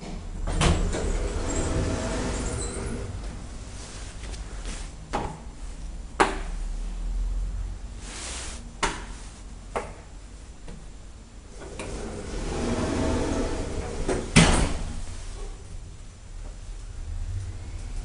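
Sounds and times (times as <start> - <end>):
elevator doors clunking: 0.0 - 3.4
elevator mechanism hum: 0.0 - 4.8, 11.4 - 18.0.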